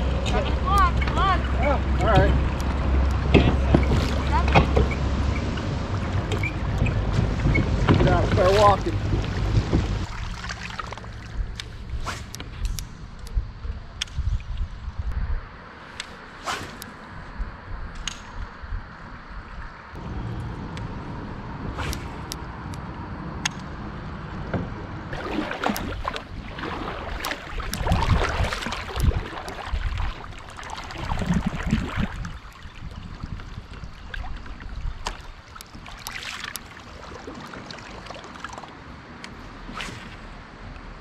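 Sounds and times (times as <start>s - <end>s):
water splashing around kayak: 0.0s - 12.4s, 25.1s - 40.3s
steady low rumble: 0.0s - 36.0s.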